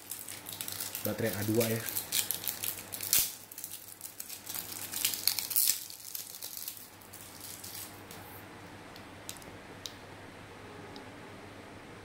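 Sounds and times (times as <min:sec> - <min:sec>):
packaging rustling: 0:00.0 - 0:08.0.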